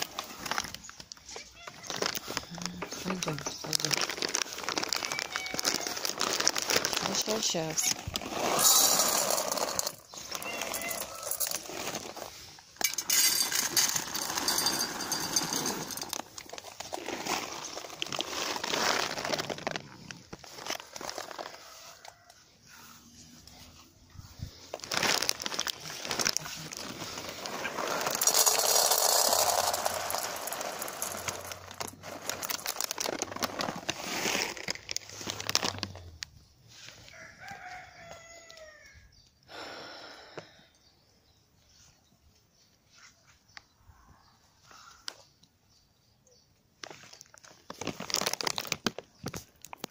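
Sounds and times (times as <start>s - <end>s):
dry food bag rustling: 0.0s - 22.3s, 24.1s - 38.1s, 46.8s - 49.9s
rooster crowing: 10.7s - 11.6s, 37.1s - 39.1s.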